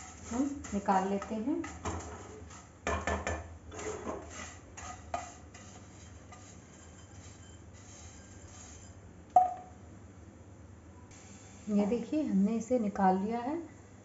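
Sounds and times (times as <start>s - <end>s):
spatula scraping a pan: 0.0s - 9.0s.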